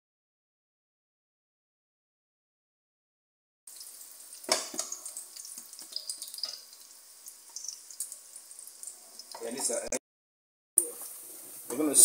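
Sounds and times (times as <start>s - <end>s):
food sizzling in oil: 3.7s - 10.0s, 10.8s - 12.0s.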